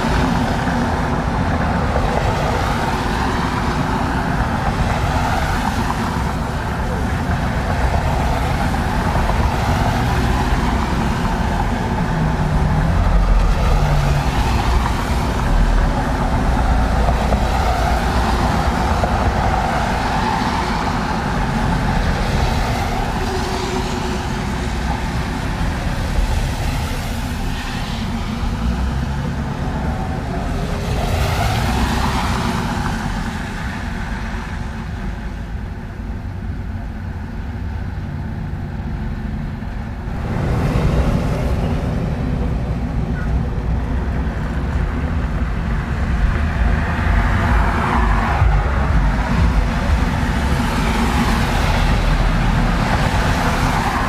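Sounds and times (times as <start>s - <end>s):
traffic rumble: 0.0s - 54.0s
tyres hissing on wet road: 7.8s - 34.6s.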